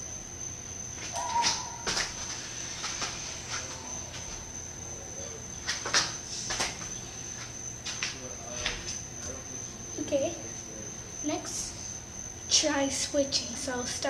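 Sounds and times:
high-pitched whine: 0.0s - 7.4s.

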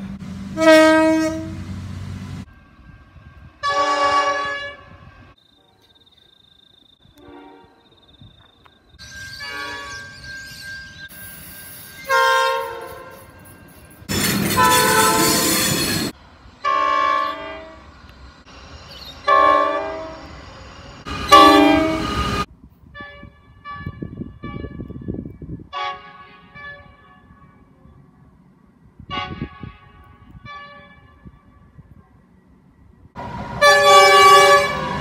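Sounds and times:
train air horn blasts: 0.5s - 1.6s, 3.5s - 5.3s, 7.0s - 7.9s, 9.4s - 10.1s, 12.0s - 13.4s, 14.5s - 17.9s, 19.3s - 20.3s, 21.1s - 25.1s, 25.7s - 27.6s, 29.0s - 31.7s, 33.6s - 35.0s.

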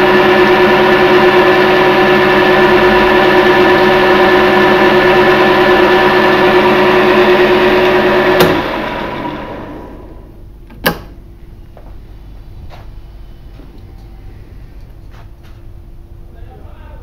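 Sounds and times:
metal lathe droning: 0.0s - 10.3s.

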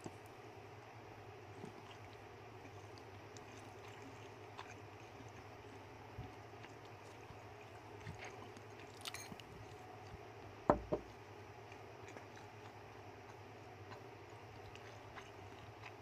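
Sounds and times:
low background hum: 0.0s - 16.0s
rat gnawing and chewing: 0.0s - 16.0s
sharp knocks: 10.7s - 11.1s.

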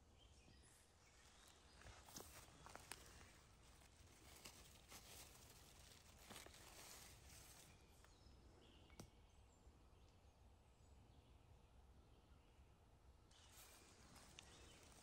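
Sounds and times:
dry leaves and twigs crackling: 0.7s - 8.3s, 13.3s - 15.0s
faint bird chirps: 4.2s - 15.0s.

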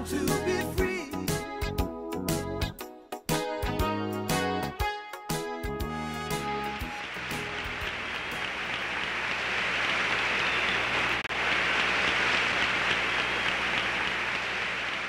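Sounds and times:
crowd applauding: 6.2s - 15.0s.

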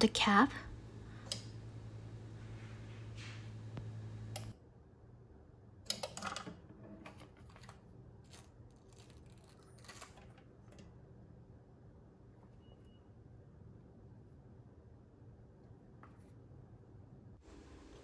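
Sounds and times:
heat sealer humming: 0.0s - 4.5s, 17.4s - 18.0s
sealer switch click: 1.2s - 1.6s.

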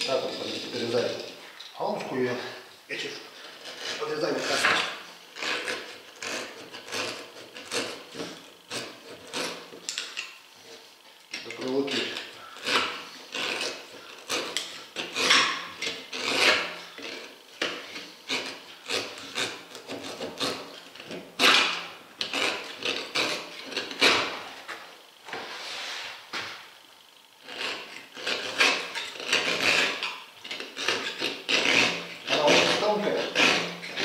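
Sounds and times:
knife scraping through rubber tyre: 3.4s - 10.0s, 11.9s - 24.5s, 27.4s - 34.0s.

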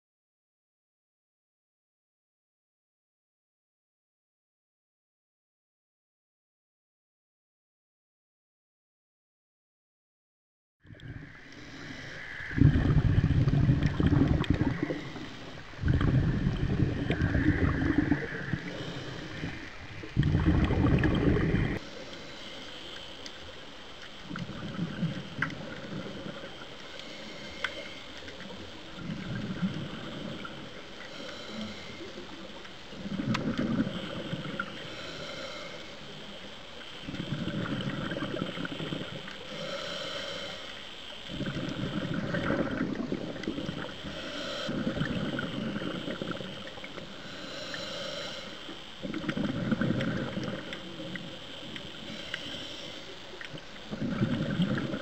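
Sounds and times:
bubbling exhale: 10.9s - 23.6s, 24.2s - 55.0s
regulator hissing inhale: 10.9s - 55.0s.

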